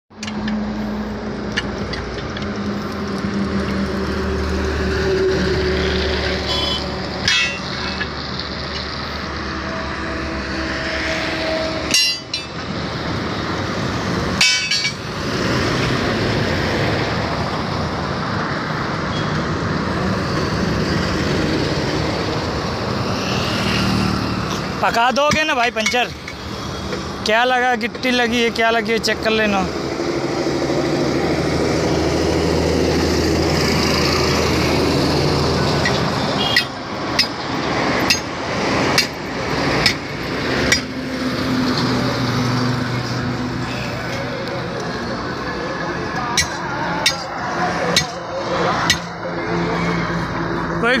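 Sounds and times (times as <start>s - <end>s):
road traffic: 0.1s - 51.0s
tyre levers clanking on steel rim: 7.2s - 8.9s, 11.9s - 12.6s, 14.4s - 15.0s.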